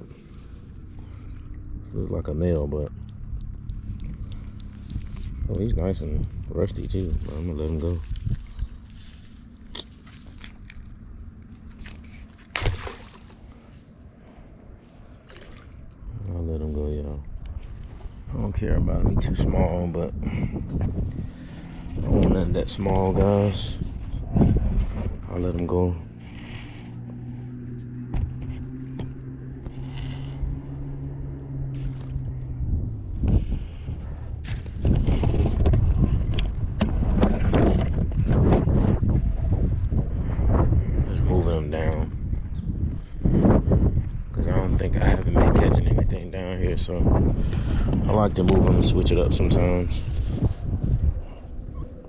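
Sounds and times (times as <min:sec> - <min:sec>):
engine running steadily: 0:00.0 - 0:52.0
steady low rumble: 0:00.0 - 0:52.0
crab splashing into water: 0:12.5 - 0:13.4.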